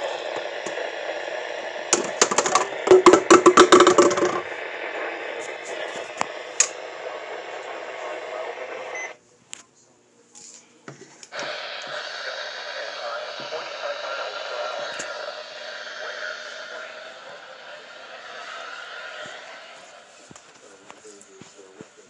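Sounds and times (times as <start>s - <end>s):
crackling clicks: 0.0s - 8.9s
radio static hiss: 0.0s - 9.2s, 10.4s - 22.0s.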